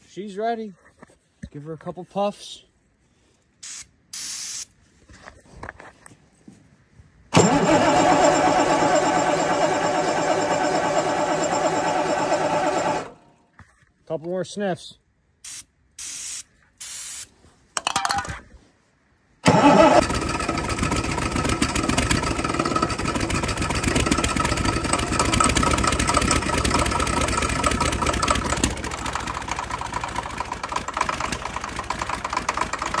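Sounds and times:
diesel engine starting and running: 7.3s - 13.3s, 19.4s - 33.0s
starting fluid spray hisses: 19.4s - 20.2s.

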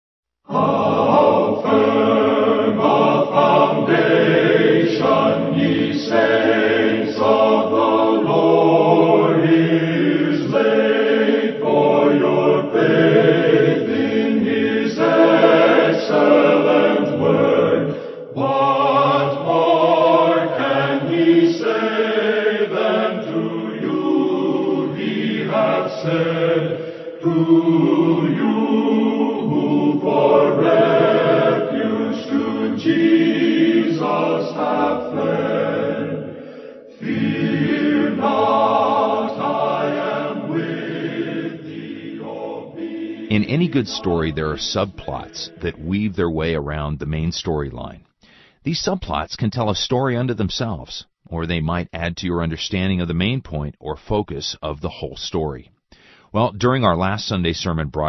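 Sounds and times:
choir singing: 0.5s - 46.0s.

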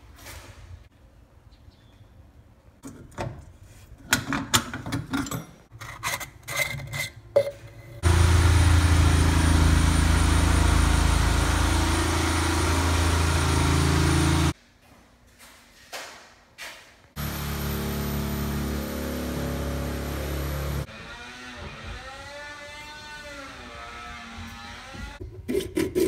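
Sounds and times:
loud steady humming noise: 8.0s - 14.5s.

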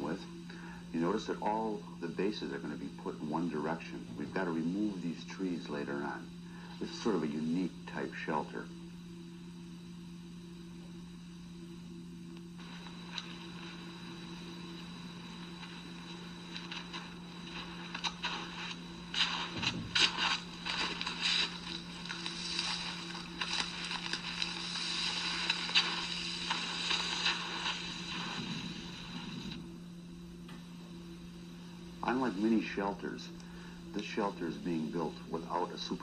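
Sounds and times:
steady low hum: 0.0s - 36.0s
brush scraping over snow: 16.6s - 29.5s
boots crunching in snow: 17.5s - 28.6s.

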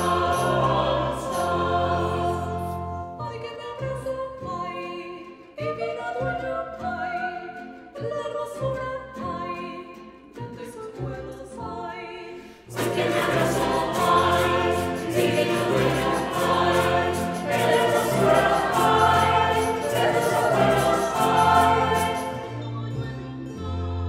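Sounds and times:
mixed choir singing: 0.0s - 3.0s, 12.7s - 22.9s
percussion strikes: 12.7s - 22.6s.

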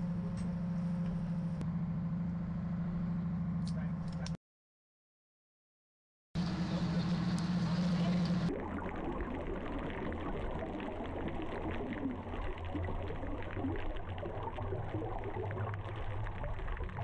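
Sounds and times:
low steady hum: 6.4s - 17.0s
underwater bubbles crackling: 7.0s - 17.0s.

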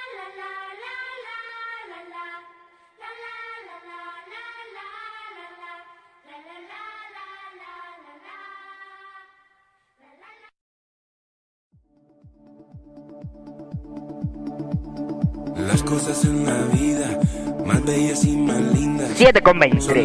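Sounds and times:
high voice singing held notes: 17.8s - 20.0s.

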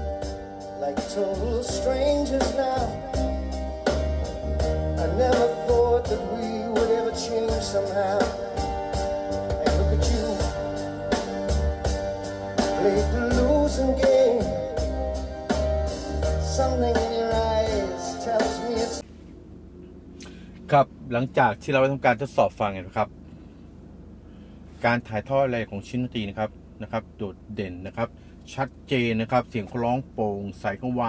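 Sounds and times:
song over car speakers: 0.0s - 20.7s.

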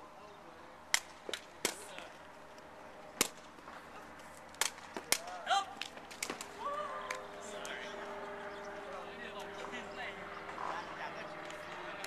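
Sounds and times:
ball kicked with sharp cracks: 3.2s - 3.7s, 4.5s - 7.2s
person shouting: 5.2s - 5.8s, 6.6s - 7.1s.

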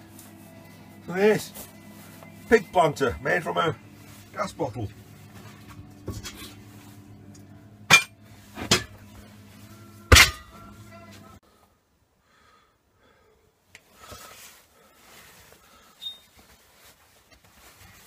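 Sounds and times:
steady low hum: 0.0s - 11.5s
faint rustle: 13.8s - 18.0s.

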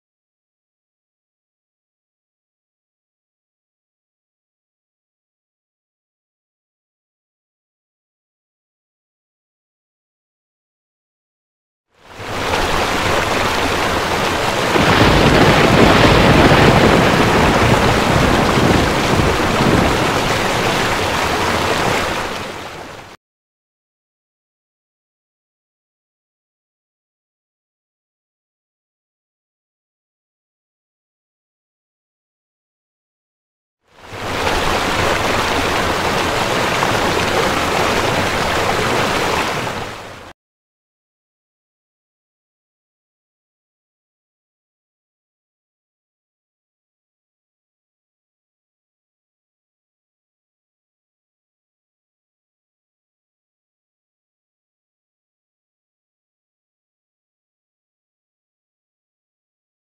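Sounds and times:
rushing water: 12.0s - 23.2s, 33.9s - 40.4s
heavy rain hissing: 12.2s - 23.0s, 34.1s - 40.2s
deep thunder rumble: 12.6s - 22.1s.

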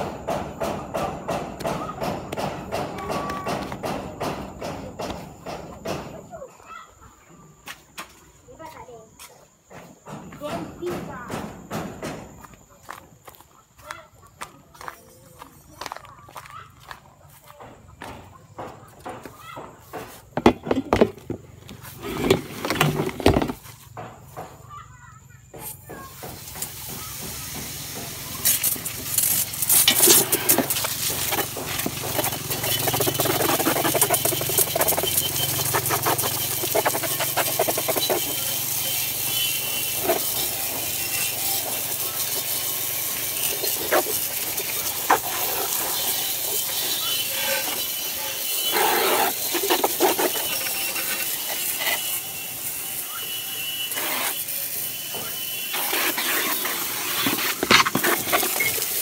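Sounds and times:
water hissing and splashing: 26.0s - 59.0s.

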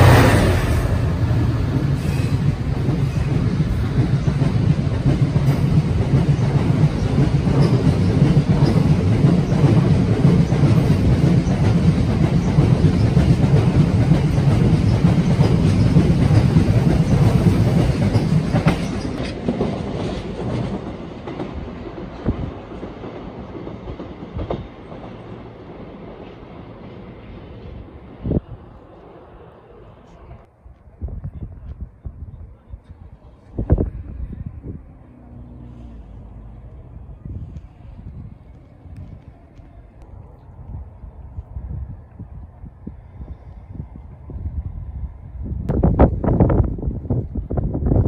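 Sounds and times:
train wheels clattering over rail joints: 0.0s - 25.4s.

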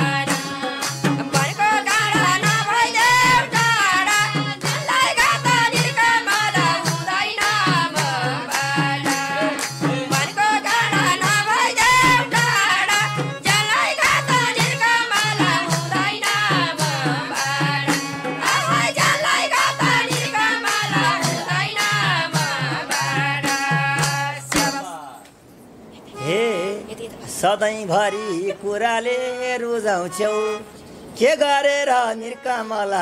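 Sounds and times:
fast hand-drum beat: 0.0s - 24.8s.

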